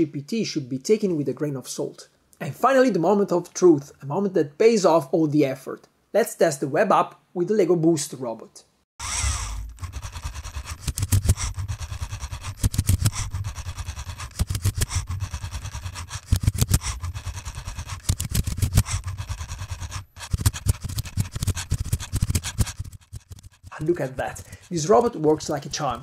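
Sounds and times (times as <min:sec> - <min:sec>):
rapid mechanical rattle of robot: 0:09.0 - 0:26.0.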